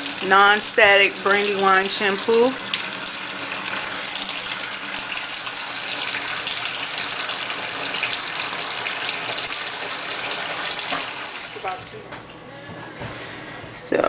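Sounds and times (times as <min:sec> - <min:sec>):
tap running into steel sink: 0:10.8 - 0:11.2.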